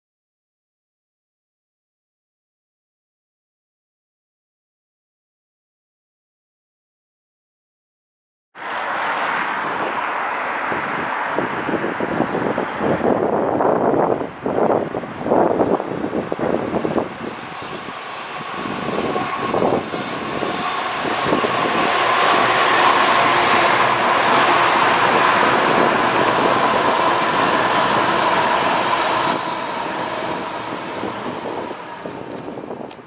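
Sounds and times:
diesel train engines passing: 8.6s - 33.0s
train wheels on rails: 15.0s - 33.0s.

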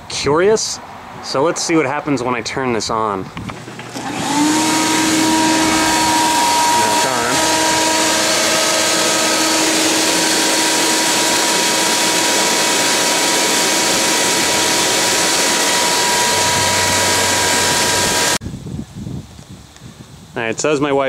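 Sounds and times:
shop vac running: 3.6s - 18.4s.

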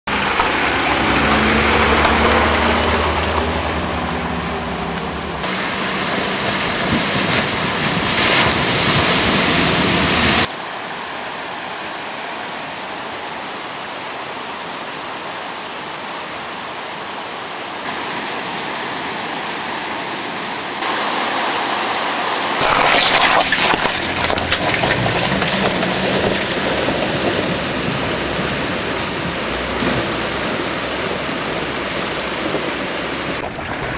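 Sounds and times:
water rushing: 0.0s - 33.9s
car engine running: 0.1s - 8.7s
water splashing: 0.1s - 12.1s, 17.8s - 33.9s.

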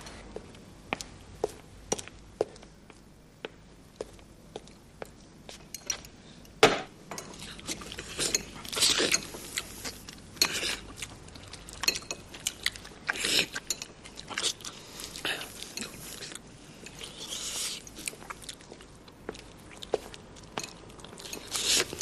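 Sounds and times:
forks clinking on plates: 5.6s - 6.2s, 11.8s - 12.6s, 13.5s - 14.4s, 20.6s - 22.0s.

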